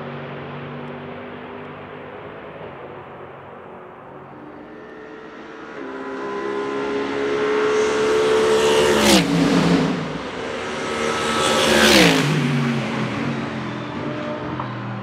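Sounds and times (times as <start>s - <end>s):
race cars passing at speed: 0.0s - 15.0s.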